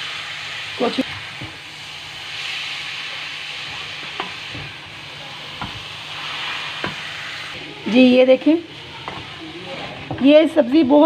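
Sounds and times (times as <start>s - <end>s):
food sizzling in a frying pan: 0.0s - 11.0s.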